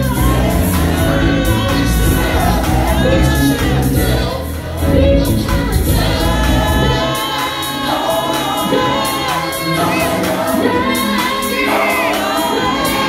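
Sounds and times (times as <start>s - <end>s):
heavy bass: 0.0s - 7.1s
choir-like backing vocals: 0.0s - 13.0s.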